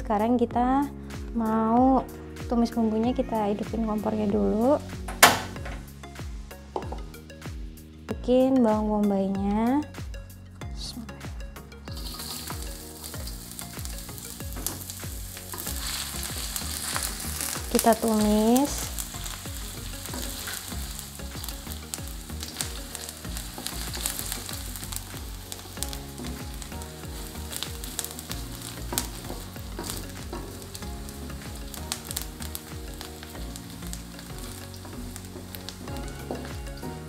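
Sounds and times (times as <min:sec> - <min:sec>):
onion sizzling in hot oil: 0:11.9 - 0:37.0.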